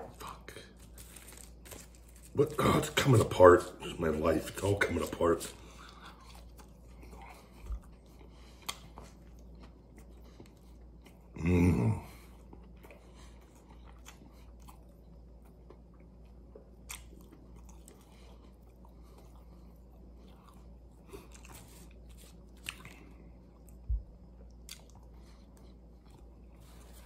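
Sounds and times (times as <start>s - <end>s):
wet chewing mouth sounds: 4.5s - 11.4s.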